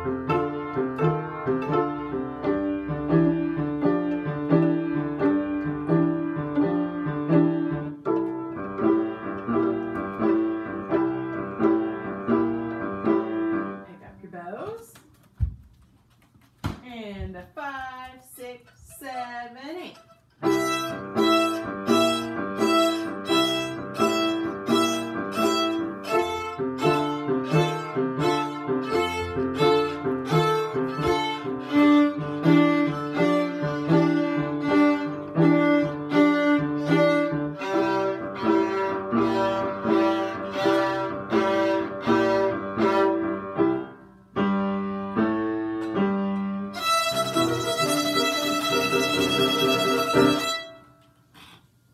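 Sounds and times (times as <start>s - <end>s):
violins playing blues tune: 20.4s - 43.2s, 46.8s - 50.8s.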